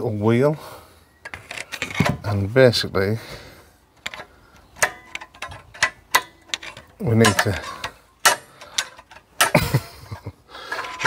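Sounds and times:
screwdriver clicking on metal: 4.0s - 9.9s.

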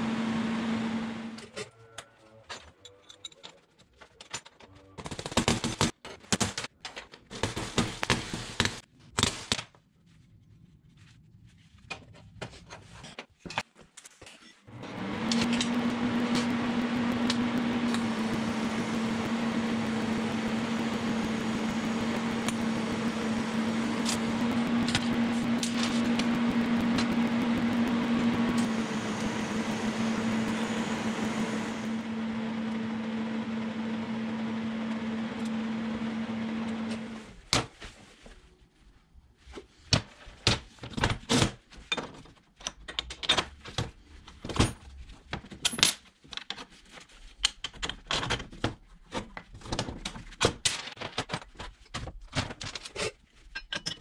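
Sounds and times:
welding arc buzzing: 14.8s - 32.6s.

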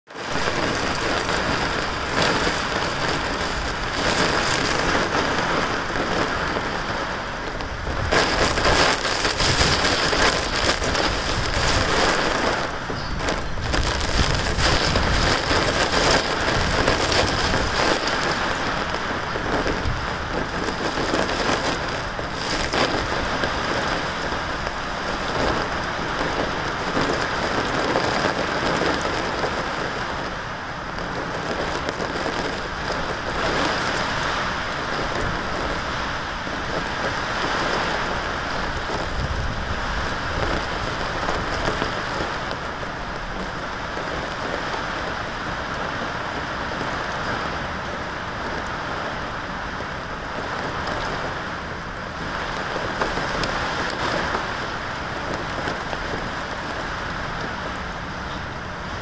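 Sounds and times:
heavy rain on a roof: 0.0s - 59.0s.

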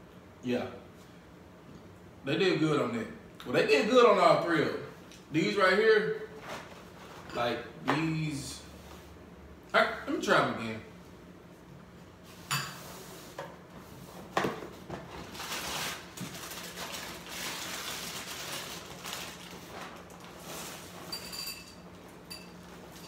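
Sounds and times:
cereal box and bag crinkling: 15.1s - 20.8s
dry cereal rattling into bowl: 15.3s - 21.4s
spoon clinking on bowl: 21.1s - 22.6s.

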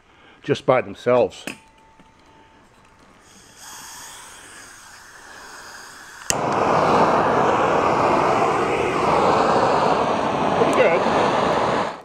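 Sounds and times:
faint hiss: 2.3s - 12.0s
rush of flame: 3.3s - 12.0s.

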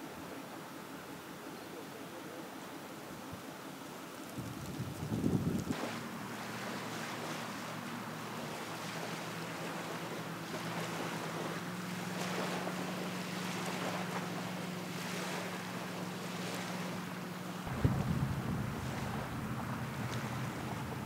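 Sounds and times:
steady low hum: 0.3s - 21.0s
wind buffeting microphone: 4.3s - 5.9s, 15.4s - 21.0s
water lapping against hull: 4.4s - 21.0s.

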